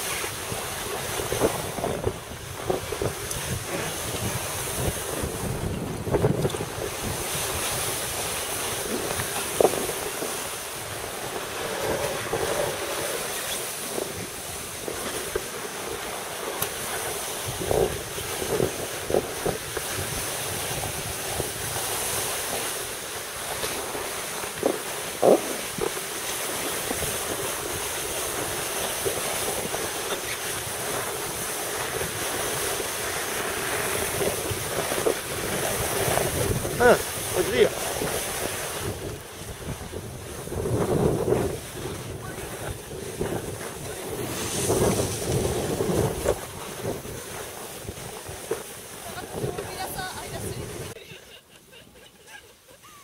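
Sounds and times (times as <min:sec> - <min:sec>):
wind on microphone: 0:00.0 - 0:51.0.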